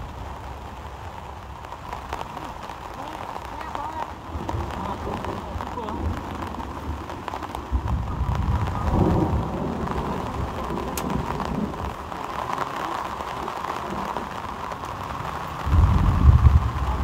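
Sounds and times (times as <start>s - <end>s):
steady rain: 0.0s - 17.0s
low rumble: 15.7s - 17.0s.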